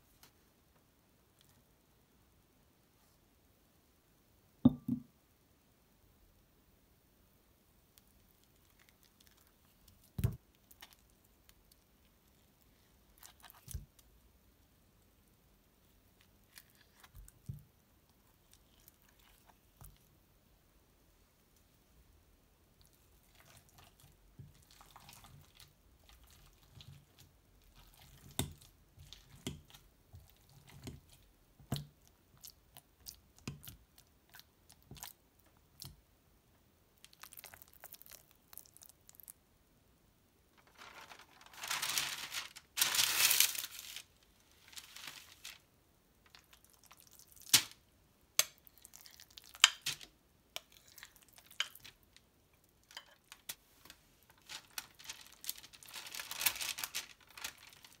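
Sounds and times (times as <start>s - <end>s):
masher squishing avocado: 37.0s - 39.4s, 48.4s - 49.9s.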